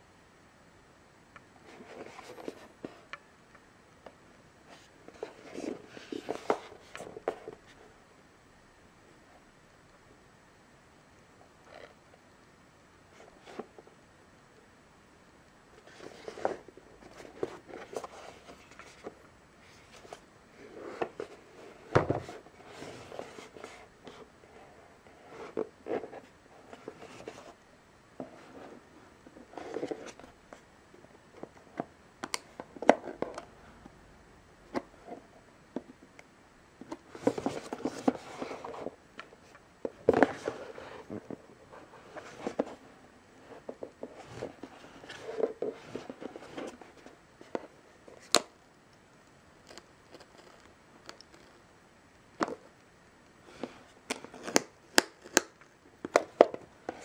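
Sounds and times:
cardboard and plastic rustling: 0:04.7 - 0:07.8, 0:15.8 - 0:24.3, 0:28.2 - 0:30.7, 0:36.8 - 0:48.4.

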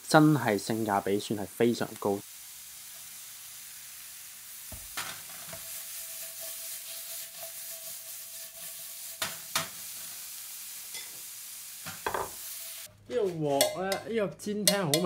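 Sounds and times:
shrimp sizzling in a frying pan: 0:00.0 - 0:12.9
shrimp sliding and knocking in pan: 0:04.6 - 0:12.9.

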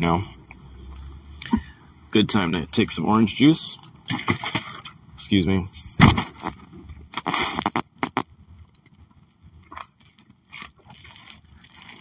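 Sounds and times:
plastic bottle rustle: 0:06.0 - 0:08.2, 0:10.0 - 0:12.0.

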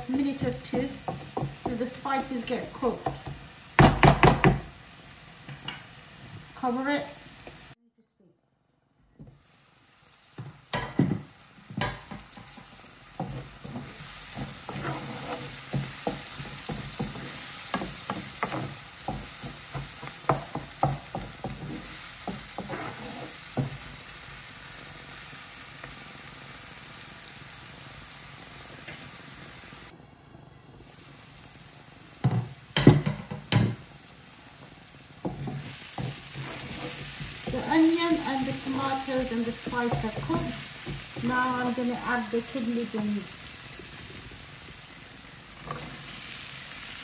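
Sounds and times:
food sizzling in oil: 0:00.0 - 0:07.8, 0:09.1 - 0:47.0
wooden spoon scraping pan: 0:11.7 - 0:23.9, 0:35.2 - 0:41.9, 0:45.6 - 0:46.2.

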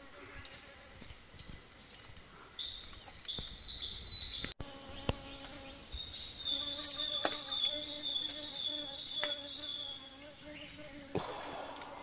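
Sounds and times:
cicada droning: 0:02.5 - 0:12.0.

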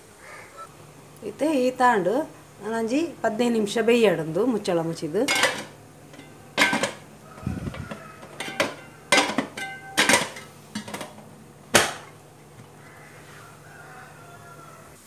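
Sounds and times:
metal lid clanking on pot: 0:05.2 - 0:12.7.

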